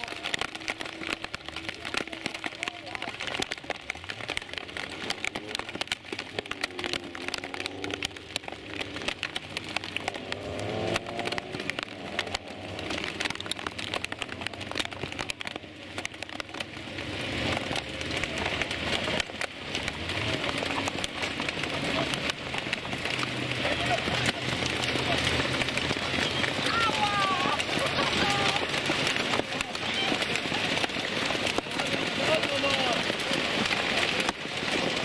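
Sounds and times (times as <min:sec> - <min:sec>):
heavy rain: 0:00.0 - 0:35.0
race cars driving past: 0:04.8 - 0:15.2.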